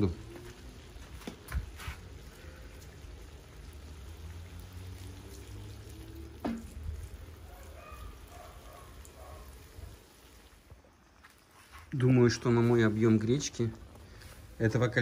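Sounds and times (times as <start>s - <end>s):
water pouring into pot: 0.0s - 15.0s.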